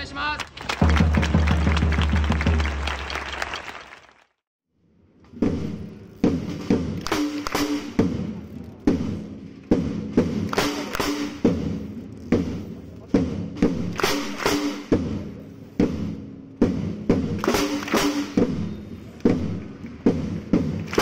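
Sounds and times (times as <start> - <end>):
snare drum hits: 5.4 - 8.2, 8.9 - 11.8, 13.2 - 21.0.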